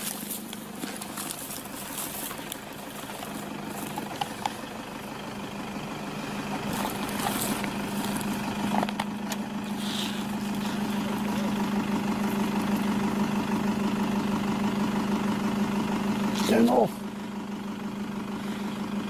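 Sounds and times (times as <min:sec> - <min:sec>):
rustling: 0:00.0 - 0:04.8, 0:06.4 - 0:13.0
vehicle engine idling: 0:00.0 - 0:19.0.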